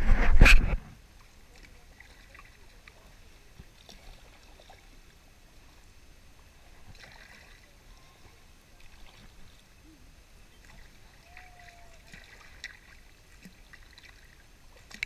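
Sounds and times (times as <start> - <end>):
water splashes: 0.0 - 15.0
paddle dipping in water: 0.1 - 15.0.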